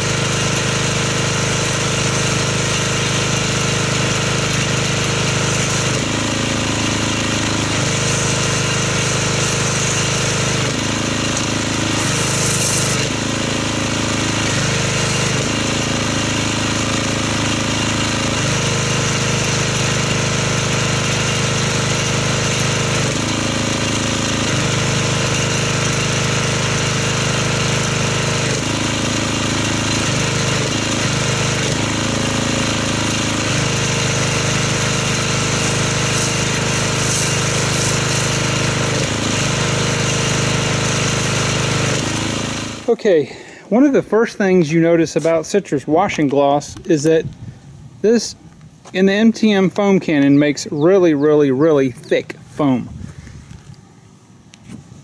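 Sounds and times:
pressure washer running: 0.0s - 53.7s
foam spray hiss: 7.5s - 10.8s, 11.8s - 13.3s, 33.3s - 39.6s.

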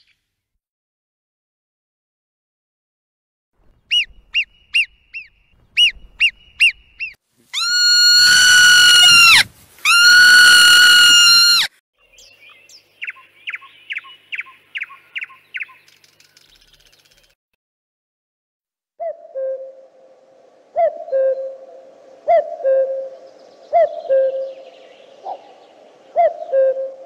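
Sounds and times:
birds chirping: 3.6s - 7.2s, 12.0s - 17.4s.

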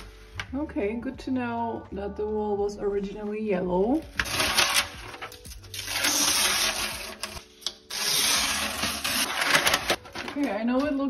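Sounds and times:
paper tearing off a wall: 4.1s - 10.5s.

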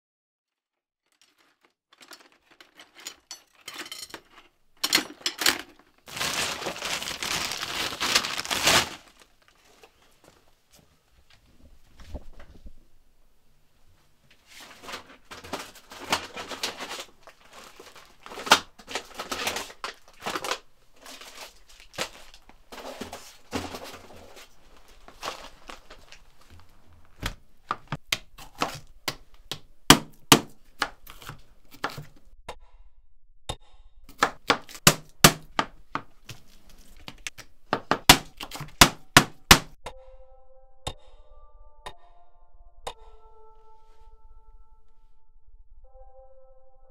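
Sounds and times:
objects rustling and knocking: 1.0s - 12.9s, 14.2s - 29.5s, 34.6s - 39.2s.

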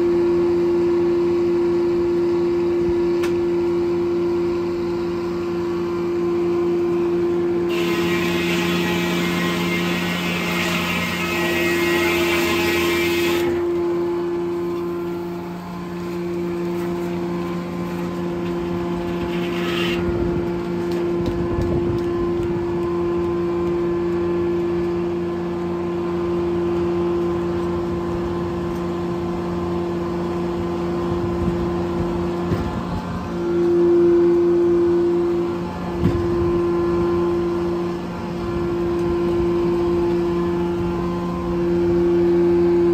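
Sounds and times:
sawmill humming: 0.1s - 31.1s, 31.7s - 42.9s
saw blade cutting log: 7.7s - 13.8s, 18.8s - 20.1s.

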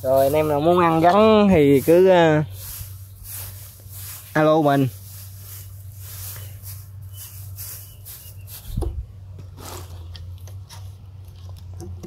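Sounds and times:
plastic sacks rustling: 0.0s - 8.8s
steady low hum: 0.0s - 12.0s.

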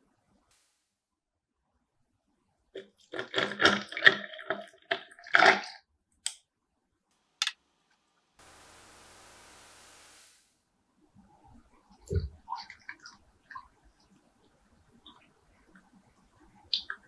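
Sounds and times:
coffee pouring: 2.8s - 5.7s
ice cubes cracking and clinking: 2.8s - 5.8s.

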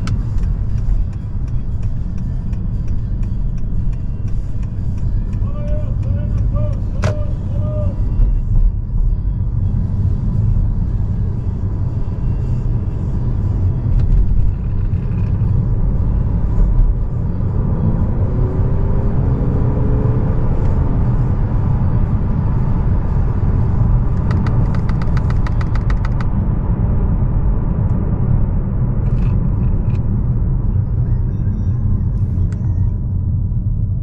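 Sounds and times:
road and tyre rumble: 0.0s - 34.0s
rapid ticks: 24.2s - 26.3s.

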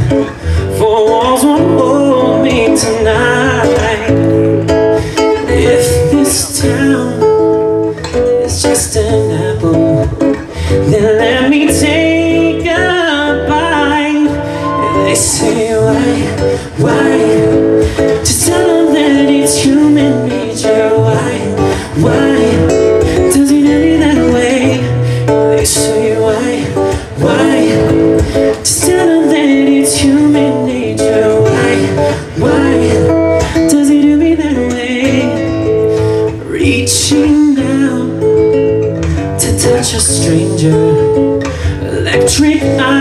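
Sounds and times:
acoustic guitar strummed and plucked: 0.0s - 43.0s
person singing: 8.6s - 35.4s.

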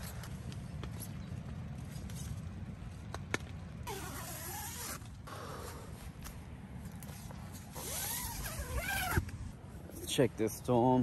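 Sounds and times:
short creaking rasps: 3.8s - 6.0s, 7.1s - 9.4s.

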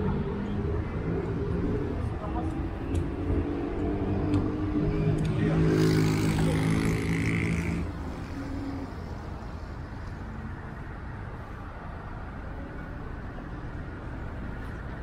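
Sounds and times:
vehicle engine passing: 0.0s - 9.7s.

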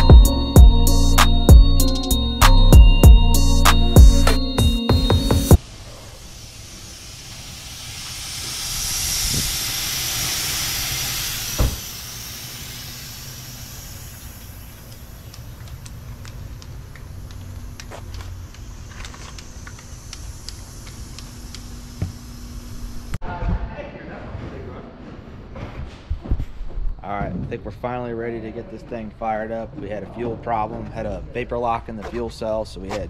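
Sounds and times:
compressed air hissing: 5.5s - 16.5s
steady low hum: 5.6s - 23.2s
thump: 11.4s - 12.0s.

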